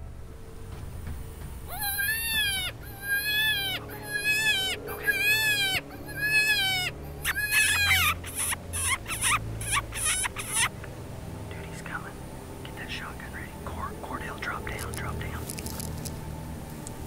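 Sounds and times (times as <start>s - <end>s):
coyote howler call: 1.6s - 10.8s.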